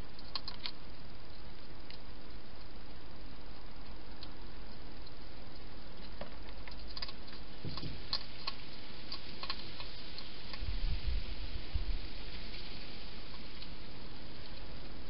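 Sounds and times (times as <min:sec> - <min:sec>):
background hiss: 0:00.0 - 0:15.0
hedgehog chewing: 0:00.2 - 0:10.7.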